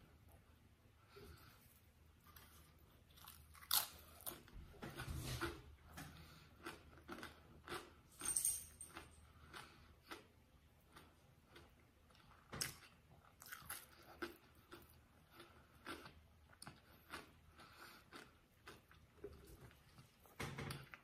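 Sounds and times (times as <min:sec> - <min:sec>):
mouth chewing: 0:08.9 - 0:21.0.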